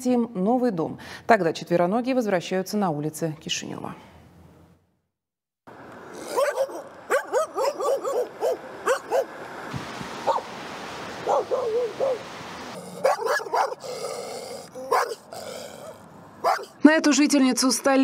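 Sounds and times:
steady background hiss: 0:05.7 - 0:16.4
dogs barking: 0:06.2 - 0:09.4, 0:10.2 - 0:10.5, 0:11.2 - 0:16.8.

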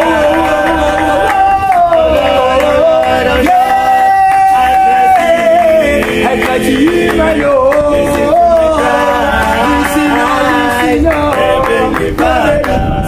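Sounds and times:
men singing in harmony: 0:00.0 - 0:13.0.

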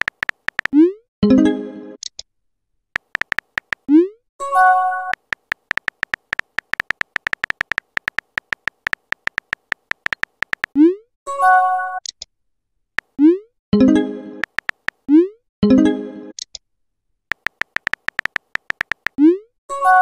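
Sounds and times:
keyboard tap clicks: 0:00.0 - 0:00.7, 0:03.0 - 0:03.8, 0:05.1 - 0:10.7, 0:14.4 - 0:15.0, 0:17.3 - 0:19.2.

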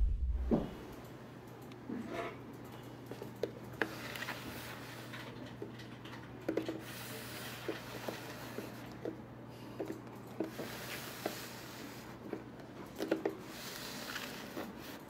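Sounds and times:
steady low hum: 0:00.0 - 0:01.6.

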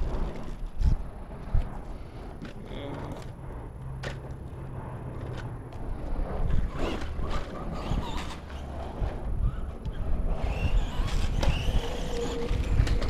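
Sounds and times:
toy truck motor whine: 0:07.8 - 0:08.9, 0:09.5 - 0:13.0.

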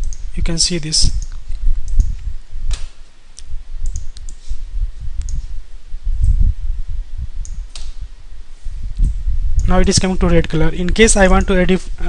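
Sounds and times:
computer mouse clicks: 0:01.2 - 0:04.4
low rumble: 0:03.4 - 0:12.0.

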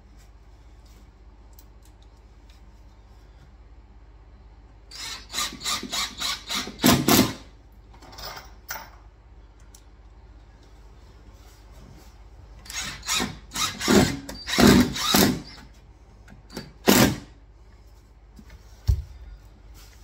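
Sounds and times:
impact driver driving screws: 0:12.7 - 0:15.6, 0:16.5 - 0:17.3.

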